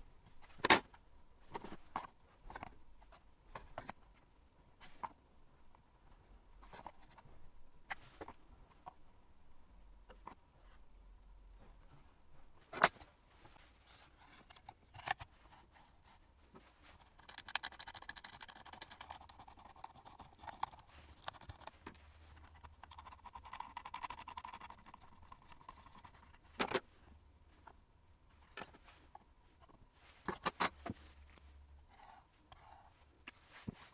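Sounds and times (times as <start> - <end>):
faint scraping and rubbing: 24.5 - 33.9.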